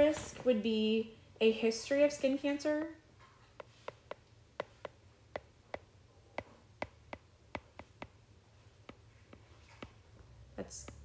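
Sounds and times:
stylus tapping on glass screen: 3.6s - 8.2s, 8.8s - 10.0s.

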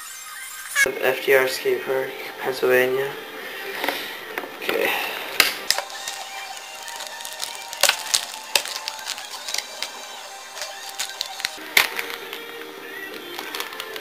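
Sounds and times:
packaging and wood clicks and taps: 5.4s - 14.0s.

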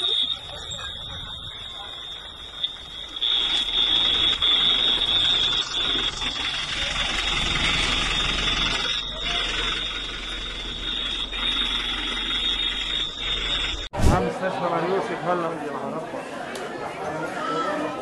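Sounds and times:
high-pitched electronic alarm tone: 0.0s - 13.9s.

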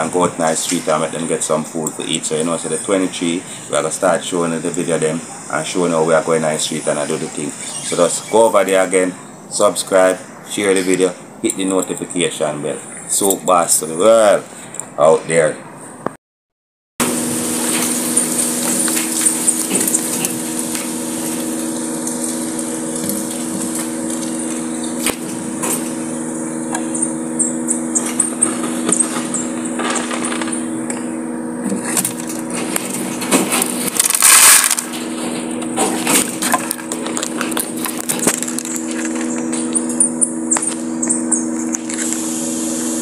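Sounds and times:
steady low hum: 0.0s - 16.1s, 17.0s - 43.0s
rabbits crunching pellets: 17.6s - 31.0s, 31.6s - 42.3s
rustling burst: 31.6s - 39.2s.

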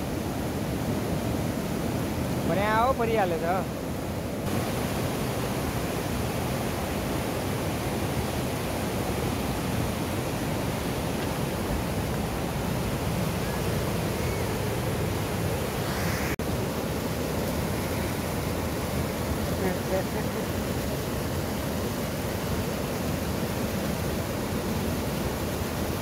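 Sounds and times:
river rushing over rapids: 0.0s - 26.0s.

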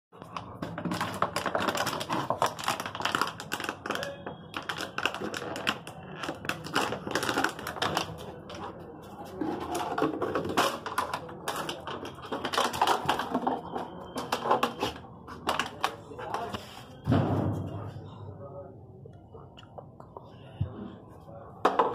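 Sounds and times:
dog chewing plastic bottle: 0.2s - 8.6s, 9.4s - 16.5s.

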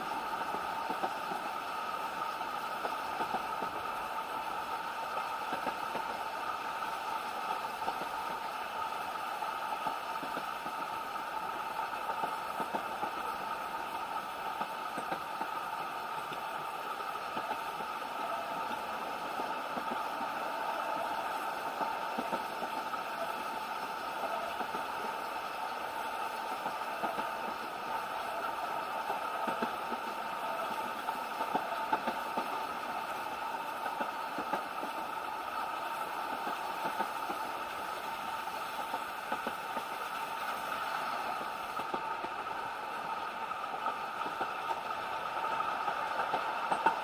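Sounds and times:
train wheels running on rails: 0.0s - 47.0s.

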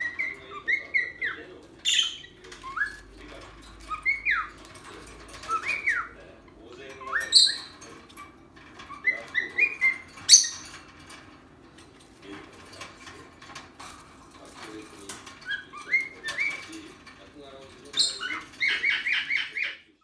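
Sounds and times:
soft bird chirps and clicks: 0.0s - 6.2s.

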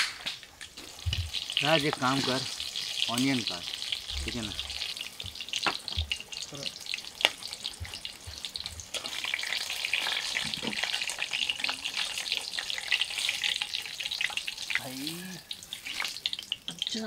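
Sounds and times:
chillies sizzling in hot oil: 0.0s - 17.0s
sharp pop from pan: 5.6s - 5.9s.

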